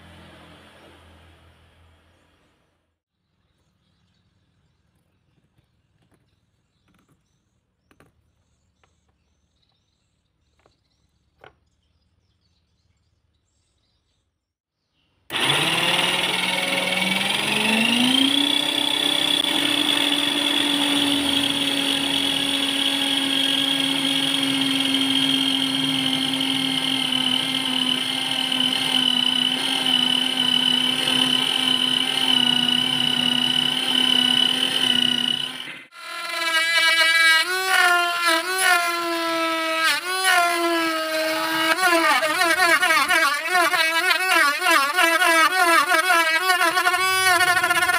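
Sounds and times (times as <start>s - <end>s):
spinning disc cutting plastic: 15.3s - 47.9s.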